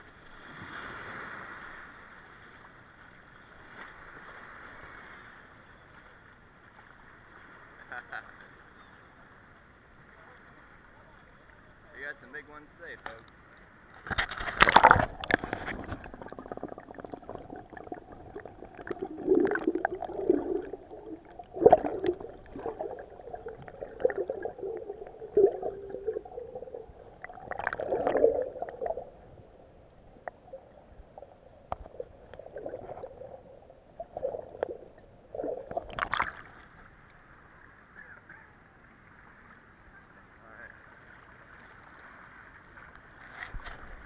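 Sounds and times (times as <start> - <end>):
underwater gurgling and sloshing: 0.0 - 7.9, 12.8 - 44.0
water splash: 14.0 - 29.2, 31.7 - 36.8.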